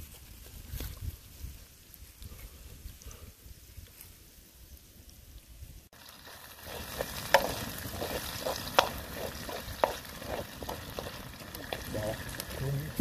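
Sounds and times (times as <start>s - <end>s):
food sizzling in a wok: 5.9s - 13.0s
metal spatula scraping a pan: 6.6s - 11.8s.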